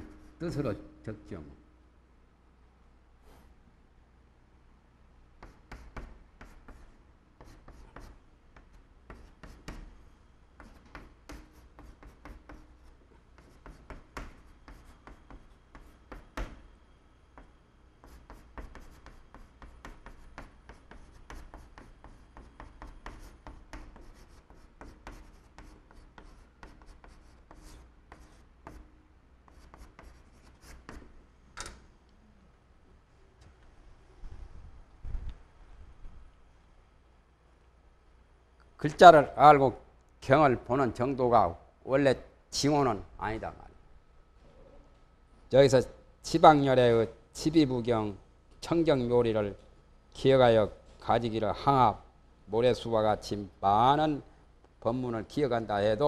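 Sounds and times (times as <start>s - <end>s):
chalk tapping and scratching: 0.0s - 0.4s, 5.4s - 10.0s, 10.6s - 16.7s, 17.3s - 31.2s.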